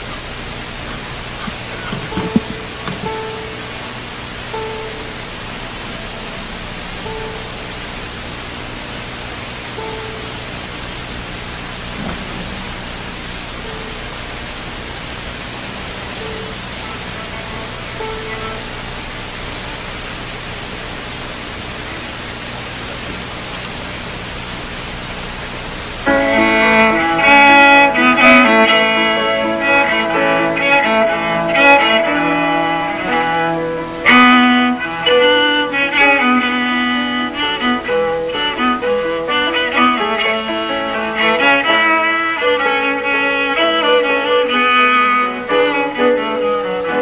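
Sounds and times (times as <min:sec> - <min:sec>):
recording hiss: 0:00.0 - 0:47.0.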